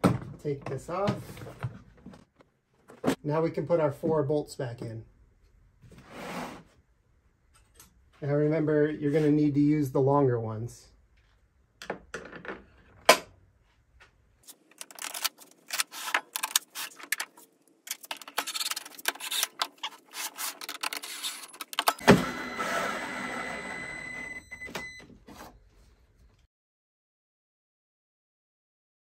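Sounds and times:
plastic parts and bolts clicking: 14.5 - 22.0
cordless drill whining: 22.0 - 24.4.

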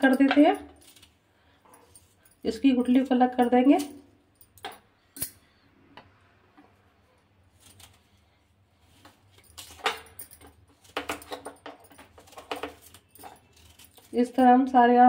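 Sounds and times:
glass bangles clinking: 0.0 - 5.7, 9.2 - 14.7.

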